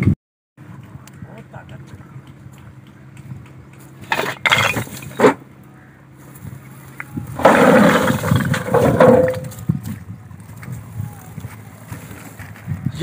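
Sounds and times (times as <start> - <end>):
bricks clattering onto a pile: 4.0 - 5.4, 7.4 - 9.6.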